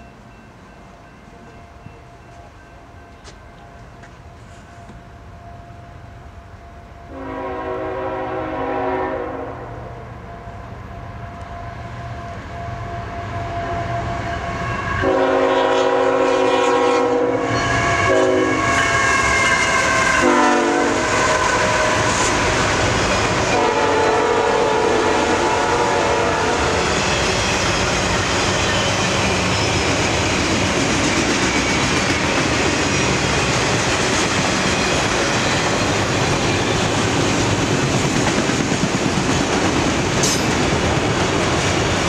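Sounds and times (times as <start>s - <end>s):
train engine and wheel noise: 0.0s - 42.0s
locomotive horn blasts: 7.1s - 10.0s, 13.0s - 22.5s, 23.4s - 26.9s.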